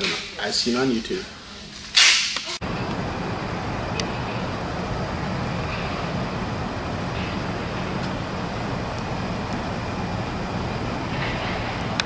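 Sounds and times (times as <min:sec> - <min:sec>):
low rumble: 0:02.6 - 0:12.0.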